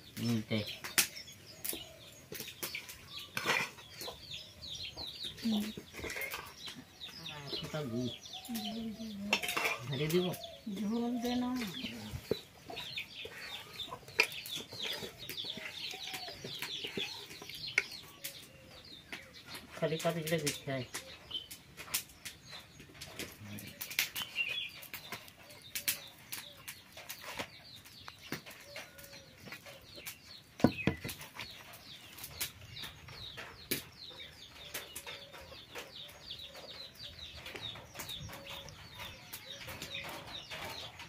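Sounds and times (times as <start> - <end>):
small birds chirping: 0.0 - 41.0.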